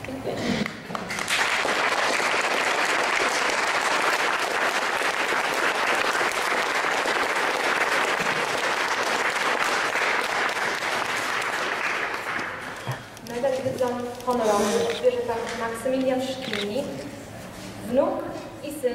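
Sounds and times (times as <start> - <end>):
audience applauding: 0.9 - 12.9.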